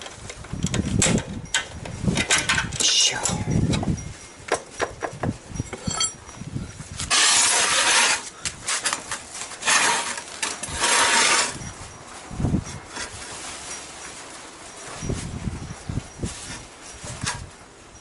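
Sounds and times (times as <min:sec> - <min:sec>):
hand tools and metal parts clinking: 0:00.0 - 0:18.0
rasping noises: 0:02.9 - 0:13.7.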